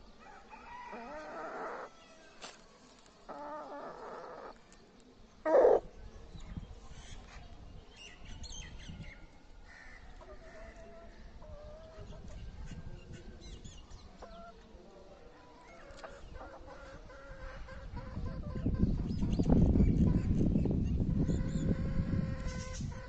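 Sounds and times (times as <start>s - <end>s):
chickens clucking: 15.7s - 20.5s, 21.1s - 23.0s.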